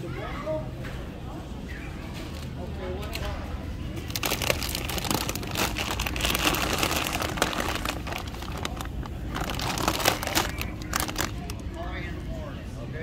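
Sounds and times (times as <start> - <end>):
plastic bags crinkling: 4.0 - 12.0.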